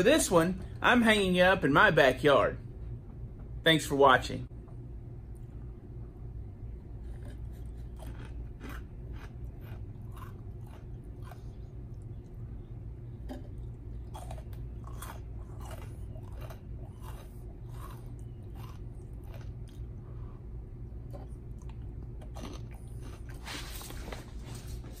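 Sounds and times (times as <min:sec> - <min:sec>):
steady low hum: 0:00.0 - 0:25.0
man chewing crunchy food: 0:06.7 - 0:24.4.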